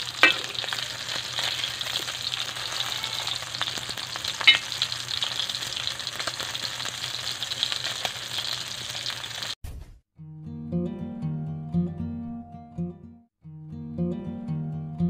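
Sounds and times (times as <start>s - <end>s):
fish sizzling in hot oil: 0.0s - 9.6s
strummed acoustic guitar music: 10.3s - 15.0s.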